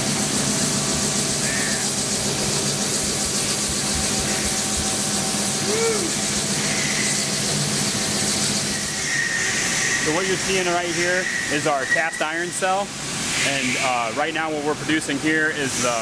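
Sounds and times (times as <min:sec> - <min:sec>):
low machine hum: 0:00.0 - 0:12.2
milling machine cutting metal: 0:00.0 - 0:12.9.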